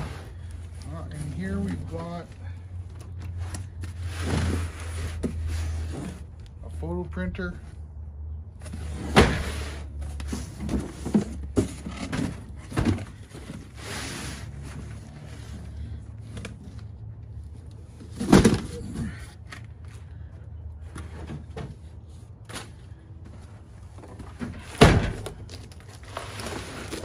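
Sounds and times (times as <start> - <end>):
cardboard boxes knocking and rustling: 8.7 - 13.8, 18.0 - 19.2.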